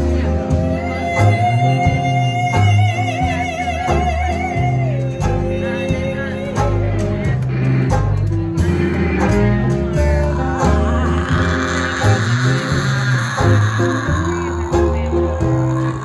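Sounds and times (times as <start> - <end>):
live band playing: 0.0 - 16.0
upright bass: 0.0 - 16.0
wavering vocal note: 8.6 - 16.0.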